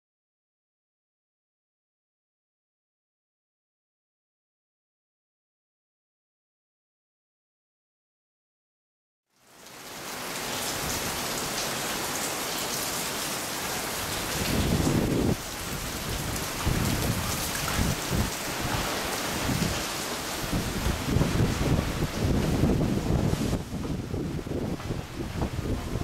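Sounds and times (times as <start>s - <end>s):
rain pouring: 9.3s - 26.0s
wind buffeting microphone: 14.0s - 26.0s.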